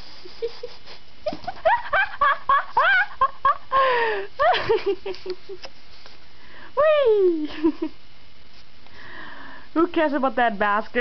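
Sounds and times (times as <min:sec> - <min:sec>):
woman laughing: 0:00.1 - 0:05.7, 0:06.8 - 0:08.0.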